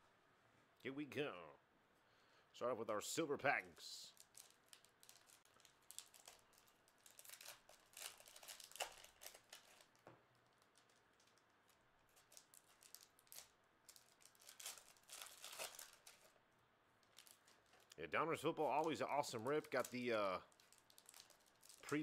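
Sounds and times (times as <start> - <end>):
foil wrappers crinkling and tearing: 4.1 - 16.4, 17.0 - 18.0, 18.6 - 22.0.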